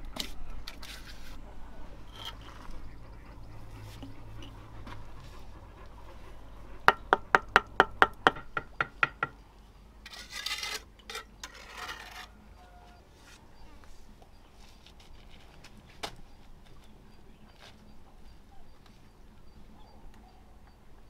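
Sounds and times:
trowel tapping brick: 6.9 - 9.4
trowel scraping wet mortar: 10.1 - 12.4.

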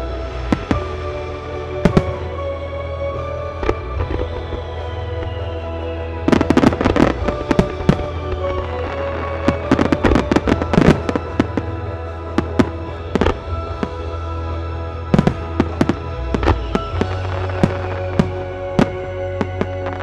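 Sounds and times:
music: 0.0 - 20.0
firework bangs: 6.2 - 14.0, 15.0 - 20.0.

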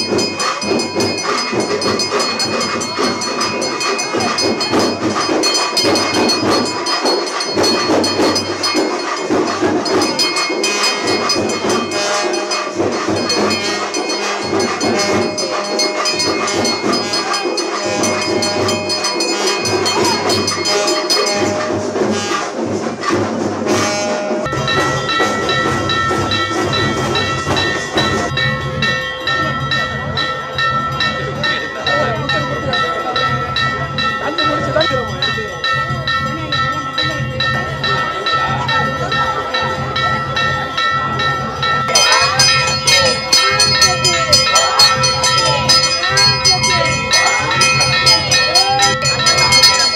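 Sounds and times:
hand bell ringing rapidly: 0.0 - 22.6, 24.4 - 49.9
music with low beat: 0.0 - 38.0.

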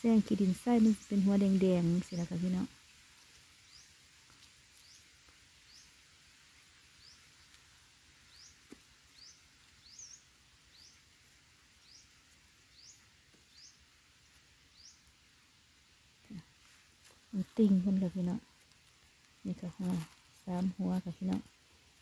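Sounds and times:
outdoor ambience: 0.0 - 22.0
bird chirping: 8.3 - 11.1, 11.7 - 13.8, 14.7 - 15.1.

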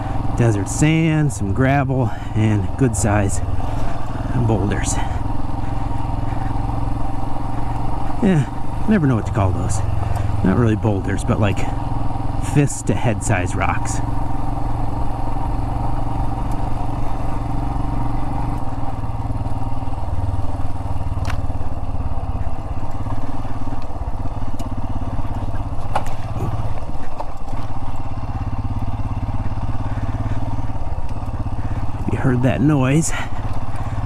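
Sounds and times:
motorcycle engine running: 0.0 - 34.0
rocks knocking against motorcycle: 25.3 - 27.8.

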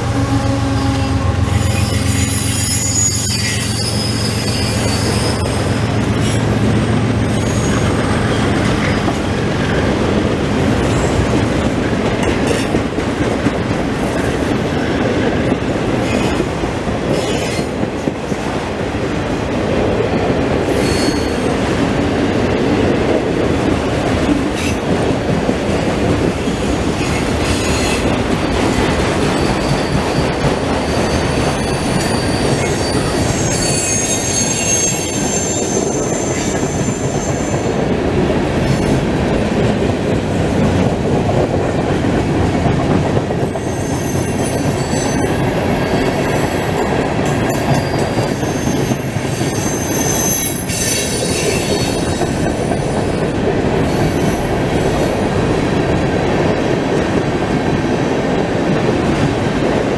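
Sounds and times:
high wheel squeal: 0.4 - 6.5, 7.2 - 9.0, 20.7 - 21.6, 29.2 - 37.8, 43.5 - 46.8, 47.5 - 53.2
train wheels clattering on rails: 1.7 - 59.9.

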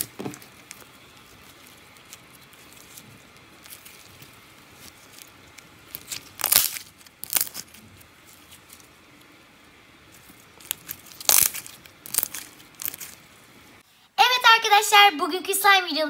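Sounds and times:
slime crackling pops: 3.6 - 7.8, 10.6 - 13.2.

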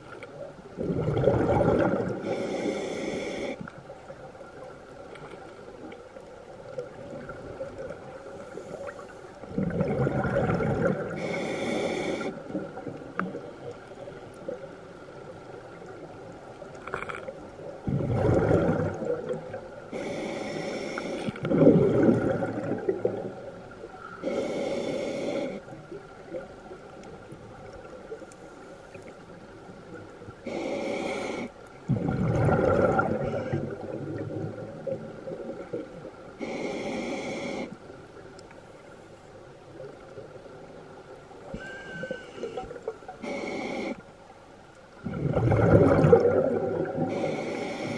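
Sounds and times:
exhaled bubbles rumbling: 0.6 - 2.3, 9.4 - 11.3, 16.1 - 19.8, 21.4 - 23.8, 31.8 - 36.2, 45.0 - 47.3
regulator hissing inhales: 2.2 - 3.7, 11.2 - 12.4, 19.9 - 21.4, 24.2 - 25.7, 30.5 - 31.5, 36.4 - 37.8, 43.2 - 44.0, 47.1 - 47.9.

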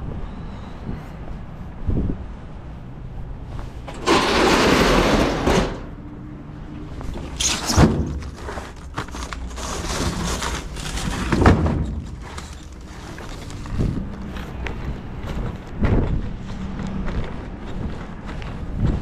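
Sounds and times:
cases thudding down: 3.9 - 6.0, 7.2 - 12.8
roll-up door rattling: 3.9 - 6.0, 7.4 - 14.0
shrink-wrapped cases handled: 7.2 - 14.3.

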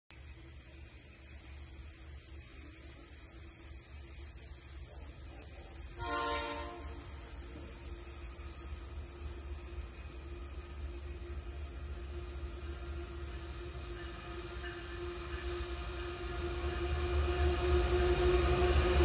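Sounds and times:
low train rumble: 4.4 - 19.0
locomotive horn blast: 5.9 - 7.2.

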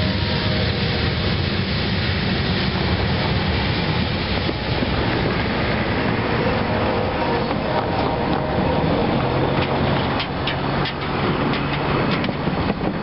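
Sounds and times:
train wheels rolling on rail: 0.0 - 13.0.

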